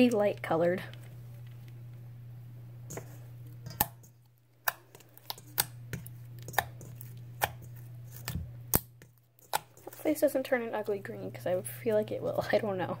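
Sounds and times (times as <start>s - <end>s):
spatula clicking on metal bowl: 3.6s - 7.8s, 8.7s - 10.0s.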